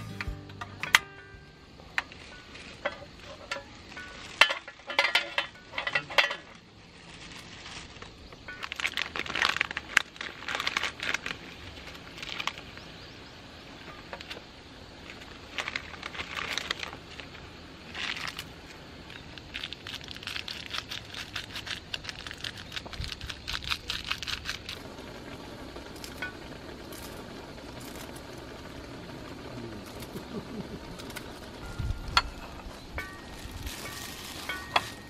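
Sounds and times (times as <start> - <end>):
metal tin clattering on stove: 2.0 - 6.6, 32.2 - 35.0
plastic packet crackling: 6.9 - 12.7, 15.2 - 17.3, 17.9 - 25.0, 33.0 - 35.0.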